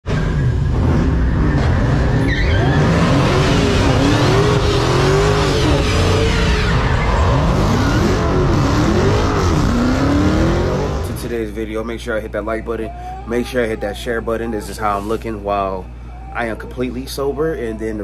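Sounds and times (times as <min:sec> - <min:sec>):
car engine: 0:00.0 - 0:11.9
car tires squealing: 0:00.1 - 0:11.1.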